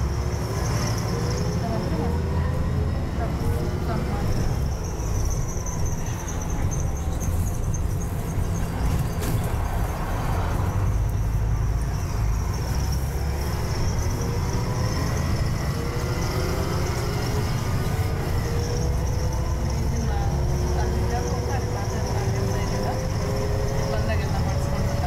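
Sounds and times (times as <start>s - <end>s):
bus diesel engine rumble: 0.0s - 25.0s
rising drivetrain whine: 0.0s - 25.0s
road noise: 0.0s - 25.0s.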